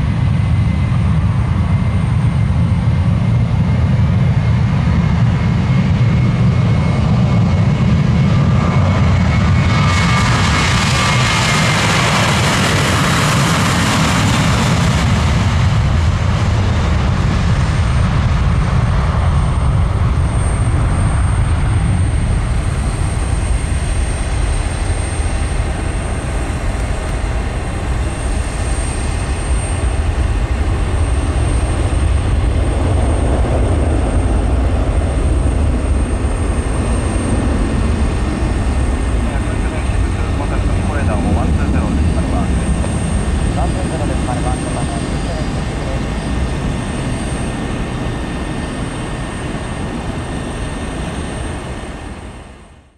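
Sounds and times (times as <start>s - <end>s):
jet engines rumbling: 0.0s - 52.9s.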